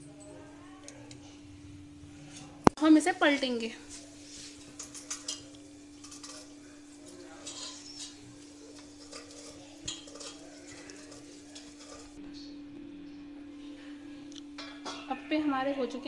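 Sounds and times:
steady low hum: 0.0s - 16.0s
wooden spatula scraping a pan: 3.9s - 12.2s.

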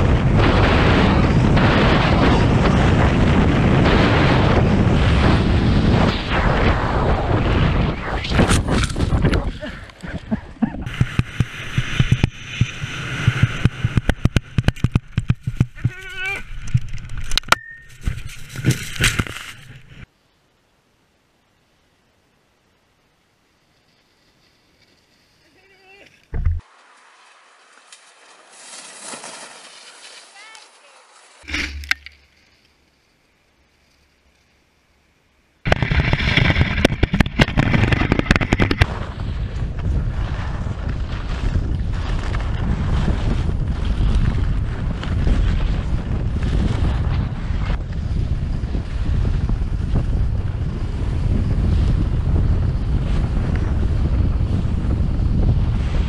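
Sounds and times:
skis scraping over hard snow: 0.0s - 20.1s, 24.2s - 32.5s, 35.7s - 56.0s
wind rushing over microphone: 0.0s - 20.1s, 35.6s - 56.0s
sharp clicks and knocks: 10.7s - 19.8s.

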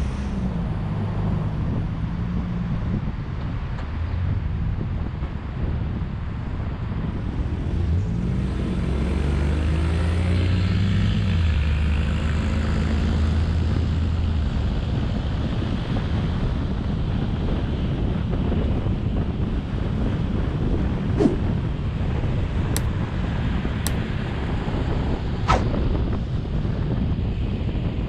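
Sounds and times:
road traffic noise: 0.0s - 28.0s.

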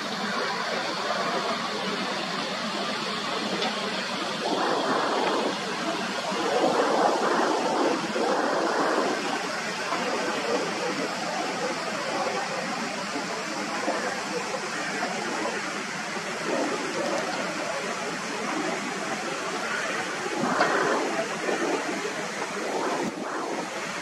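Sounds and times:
jet passing overhead: 4.4s - 11.1s, 16.4s - 24.0s.

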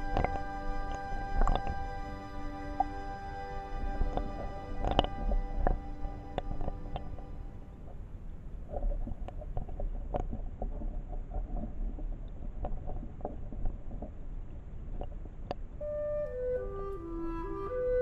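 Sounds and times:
woodwind music: 0.0s - 7.9s, 15.8s - 18.0s
underwater flowing water rumble: 0.0s - 17.2s.

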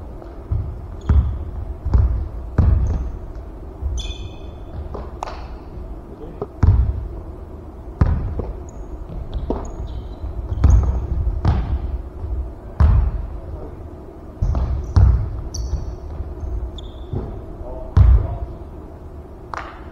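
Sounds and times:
sneakers squeaking on floor: 0.1s - 7.0s, 8.0s - 13.4s, 14.4s - 18.4s
basketball bouncing on hardwood floor: 0.2s - 3.2s, 3.8s - 5.4s, 6.6s - 7.0s, 8.0s - 13.3s, 14.4s - 18.4s.

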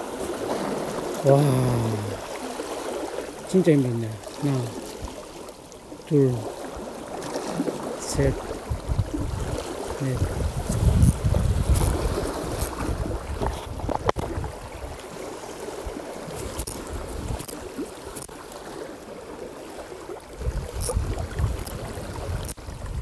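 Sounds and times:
rough sea water washing: 0.0s - 23.0s
wind buffeting microphone: 8.0s - 15.2s, 15.8s - 17.8s, 20.3s - 23.0s.

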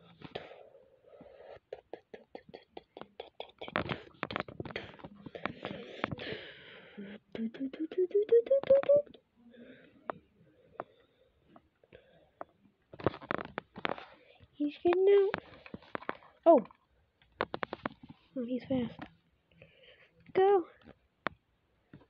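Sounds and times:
mouth clicks and pops: 1.7s - 6.3s, 7.4s - 9.2s
vocal notes climbing in pitch: 7.3s - 9.2s.

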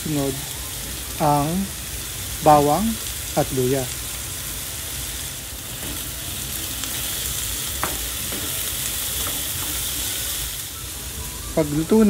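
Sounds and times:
onions sizzling in hot oil: 0.0s - 12.0s
sharp tap on pan: 7.8s - 8.6s.

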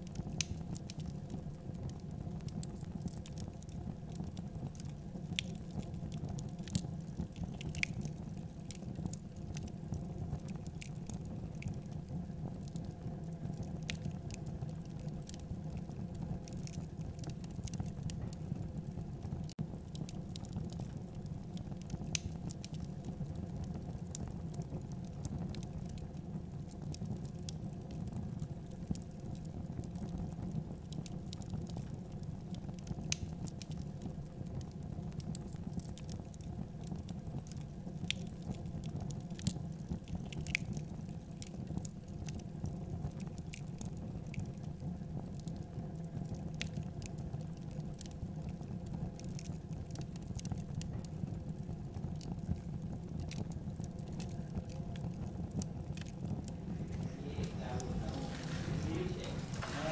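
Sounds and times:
rice grains rustling in basket: 56.8s - 59.9s.

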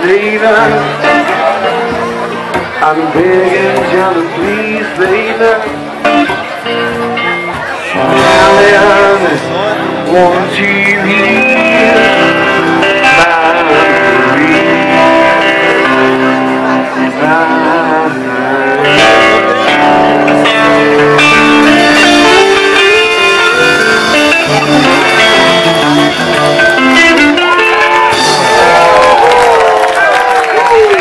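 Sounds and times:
strummed acoustic guitar: 0.0s - 28.6s
electric lead guitar: 0.0s - 31.0s
cajon drum: 1.1s - 9.0s
crowd cheering: 11.4s - 31.0s.

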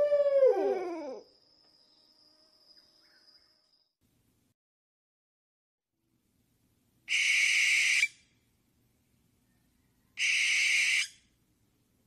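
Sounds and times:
owl screeching: 10.2s - 11.2s.

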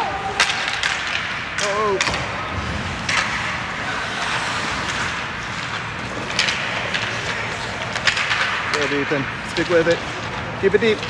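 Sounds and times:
ice rink noise: 0.0s - 11.0s
skates scraping on ice: 0.0s - 11.0s.

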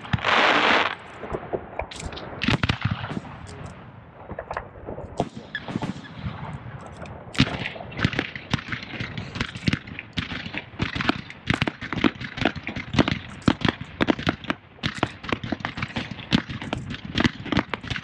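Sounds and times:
fireworks shell bursts and bangs: 4.3s - 18.0s.

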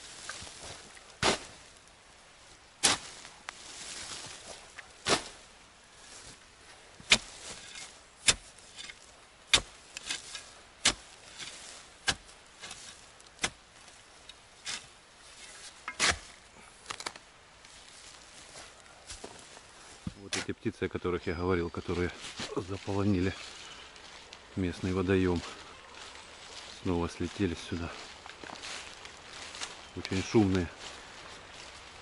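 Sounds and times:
soil crunching: 0.0s - 32.0s
shovel scraping and striking soil: 0.1s - 1.6s, 2.8s - 5.4s, 7.0s - 20.6s, 21.9s - 23.4s.

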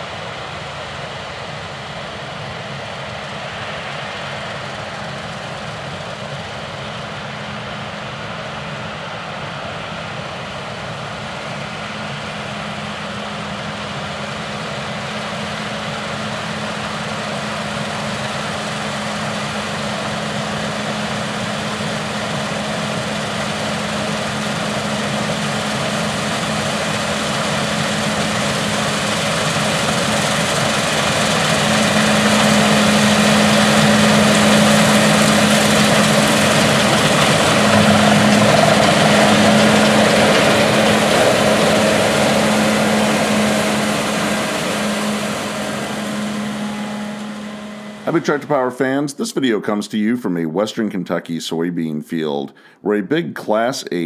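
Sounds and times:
diesel engine humming: 10.9s - 50.2s
threshing machinery rushing: 22.2s - 48.3s.

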